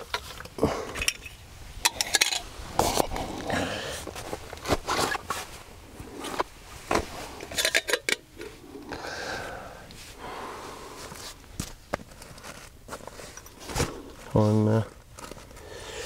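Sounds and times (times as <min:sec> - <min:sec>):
bag or fabric rustling: 0:02.5 - 0:07.4, 0:10.0 - 0:15.8.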